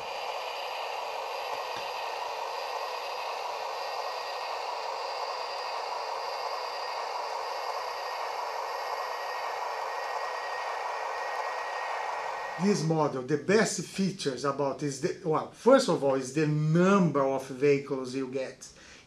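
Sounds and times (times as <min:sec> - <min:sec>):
faint steady high tones: 0:00.0 - 0:13.2
steady hiss: 0:00.0 - 0:16.3.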